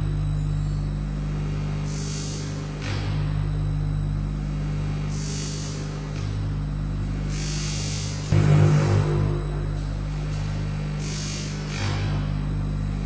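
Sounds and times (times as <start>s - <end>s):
low electronic hum: 0.0s - 13.0s
hiss: 1.9s - 2.6s, 11.0s - 11.6s.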